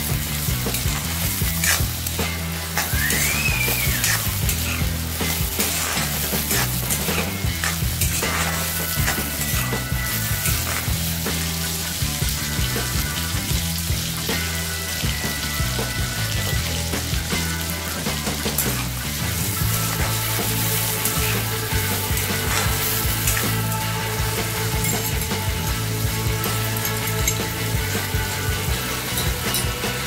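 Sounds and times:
spatula scraping a pan: 0:00.0 - 0:12.0, 0:18.5 - 0:27.4
vegetables sizzling in hot oil: 0:00.0 - 0:30.0.

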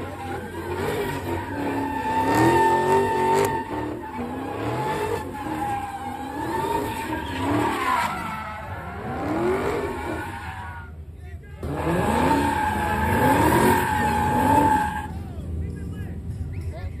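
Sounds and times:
car engine revving: 0:00.0 - 0:10.6, 0:11.6 - 0:15.8
tire squeal: 0:00.0 - 0:11.0, 0:11.6 - 0:15.5.

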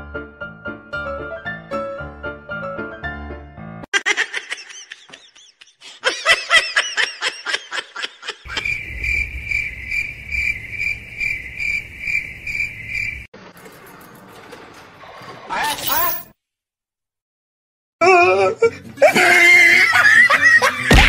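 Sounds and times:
cricket chirping: 0:08.5 - 0:13.3.

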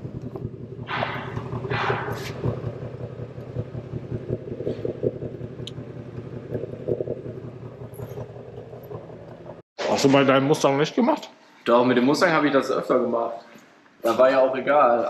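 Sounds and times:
low mechanical hum: 0:00.0 - 0:09.6.

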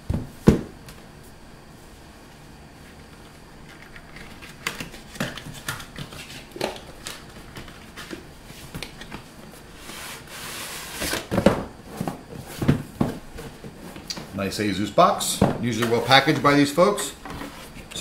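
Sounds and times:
louder knocks on box: 0:00.1 - 0:00.7.

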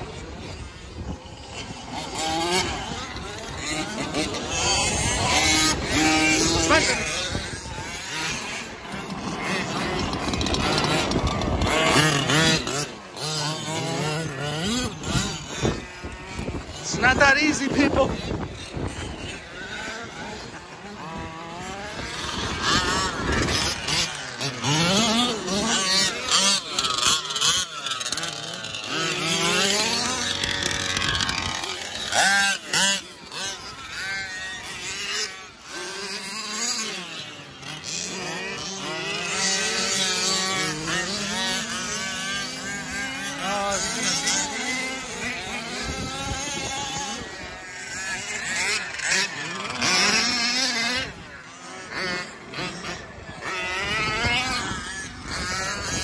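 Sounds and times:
small engine revving: 0:00.0 - 0:56.0.

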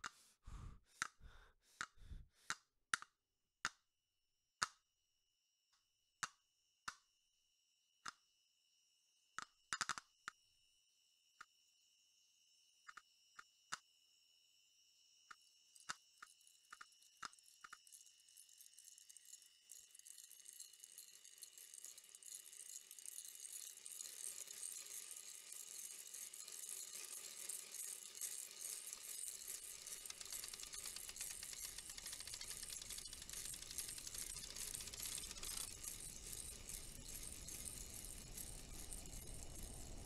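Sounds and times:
small sharp clicks: 0:06.2 - 0:07.1, 0:08.0 - 0:08.2, 0:09.4 - 0:10.4, 0:12.8 - 0:13.9, 0:15.3 - 0:17.9, 0:28.6 - 0:40.0
high rattling hiss: 0:28.8 - 0:40.0.

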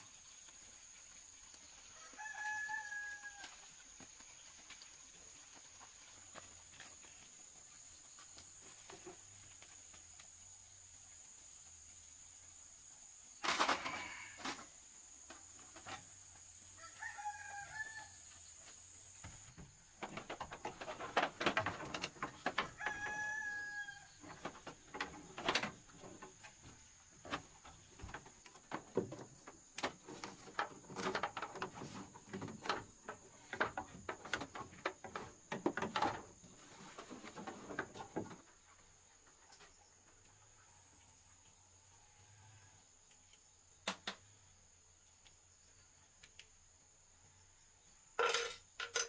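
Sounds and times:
knocks and clatter: 0:19.2 - 0:22.8, 0:27.2 - 0:38.5.

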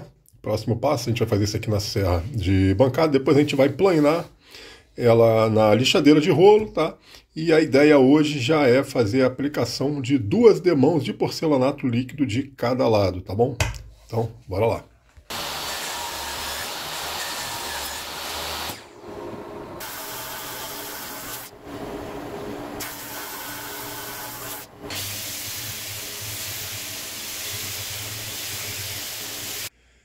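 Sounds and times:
random orbit sander: 0:15.3 - 0:25.6
table saw crosscutting wood: 0:15.3 - 0:26.8
drum sander: 0:15.3 - 0:29.7.

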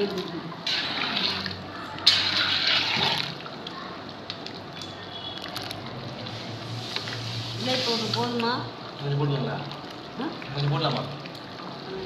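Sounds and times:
ladle stirring thick gravy: 0:00.0 - 0:04.8.

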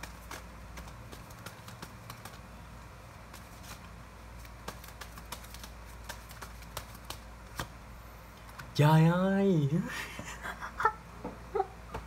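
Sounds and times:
cards clicking and tapping: 0:00.0 - 0:02.5, 0:03.2 - 0:07.8, 0:08.4 - 0:08.8.

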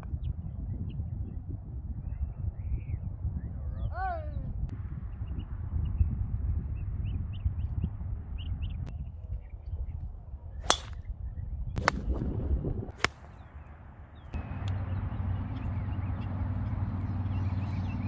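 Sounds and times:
wind rumble on microphone: 0:00.0 - 0:18.0
golf club striking ball: 0:10.6 - 0:11.0, 0:13.0 - 0:13.4.

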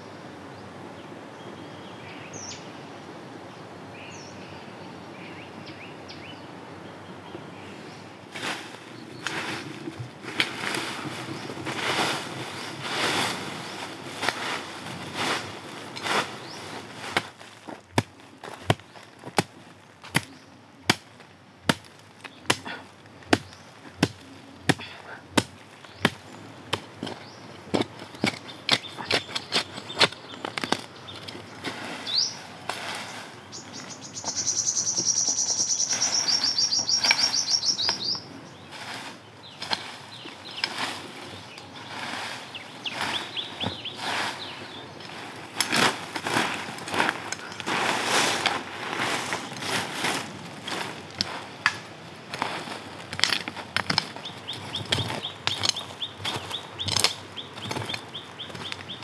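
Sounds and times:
knife chopping wood: 0:17.9 - 0:30.9
bird chirps: 0:28.2 - 0:32.4, 0:33.0 - 0:38.7, 0:39.4 - 0:45.1, 0:54.2 - 0:59.0
bird trilling: 0:33.5 - 0:38.3.

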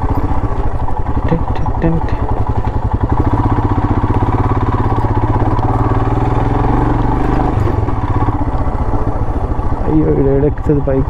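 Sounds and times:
motorcycle engine at low revs: 0:00.0 - 0:11.0.

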